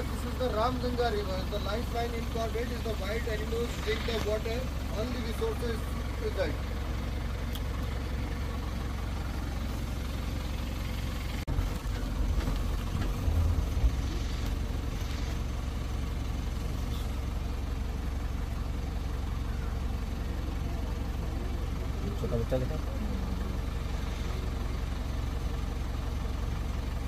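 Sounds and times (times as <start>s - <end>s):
vehicle engine low rumble: 0.0s - 27.0s
vehicle bumps and jolts: 11.4s - 17.0s.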